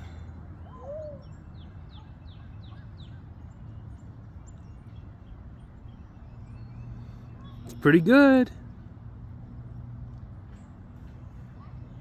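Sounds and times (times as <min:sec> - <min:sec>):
songbird singing: 0:00.0 - 0:12.0.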